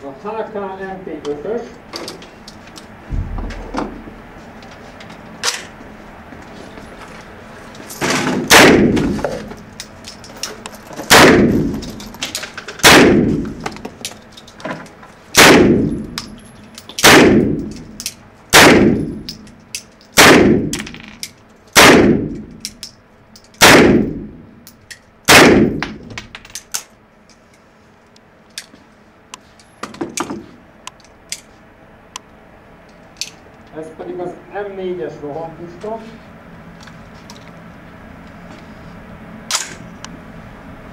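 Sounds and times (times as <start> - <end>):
submachine gun single shots: 8.5 - 9.2, 11.1 - 11.8, 12.8 - 13.4, 15.4 - 16.0, 17.0 - 17.7, 18.5 - 19.1, 20.2 - 20.7, 21.8 - 22.4, 23.6 - 24.2, 25.3 - 26.0.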